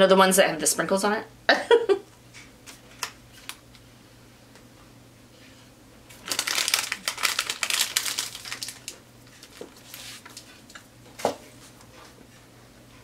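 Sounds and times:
packaging wrapper crinkling: 6.1 - 10.8.

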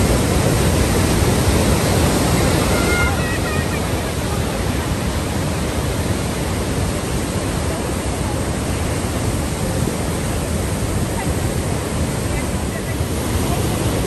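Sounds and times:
waterfall rushing onto rocks: 0.0 - 14.0.

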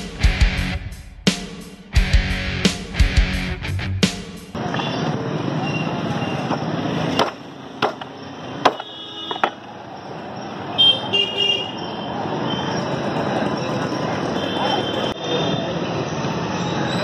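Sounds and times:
street traffic noise: 1.9 - 17.0
knife chopping meat on wood: 7.2 - 8.1
vehicle horn: 10.8 - 11.8.

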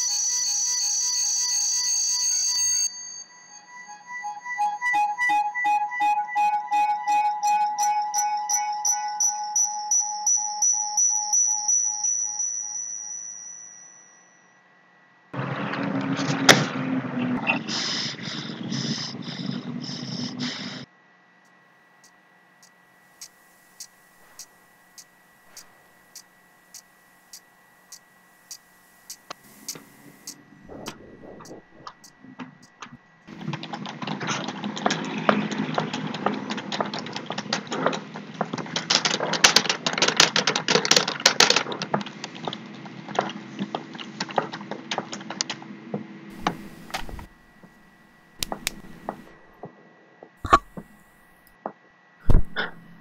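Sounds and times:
loud thumps: 52.2 - 53.0.

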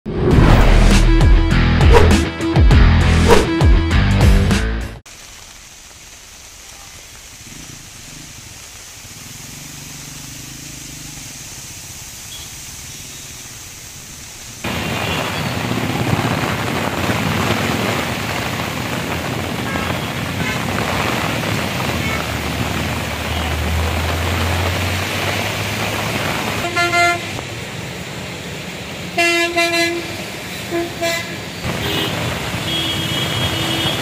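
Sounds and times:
heavy rain hissing: 5.1 - 34.0
vehicles driving through water: 7.2 - 34.0
vehicle engines humming: 7.4 - 34.0.

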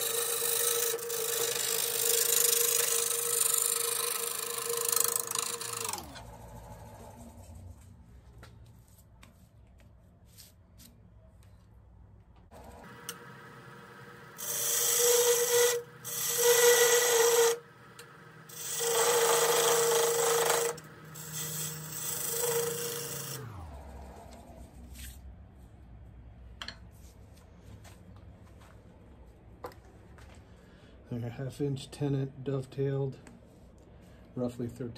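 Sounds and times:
wood lathe humming: 0.0 - 7.6, 12.5 - 24.8
turning tool scraping wood: 0.0 - 7.9, 12.9 - 25.2.

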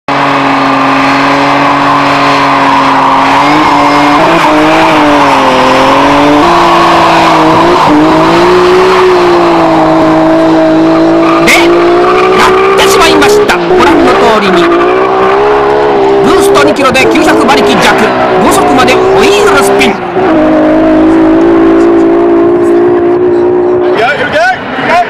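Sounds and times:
tyres spinning and squealing: 0.1 - 22.7
car engine at high revs: 0.1 - 25.0.

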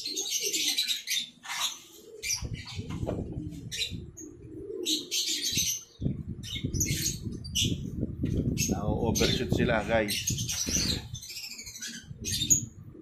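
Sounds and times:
wind rumbling on microphone: 2.4 - 4.6, 5.5 - 13.0.

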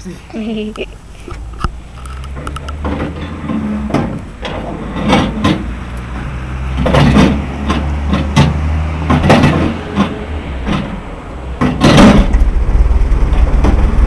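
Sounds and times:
engine starting and running: 1.3 - 14.0.

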